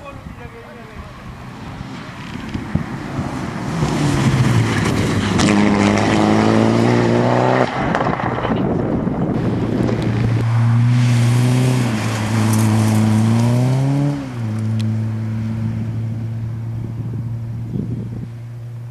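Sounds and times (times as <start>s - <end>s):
car rushing past: 1.0s - 18.9s
rally car engine under load: 1.1s - 18.9s.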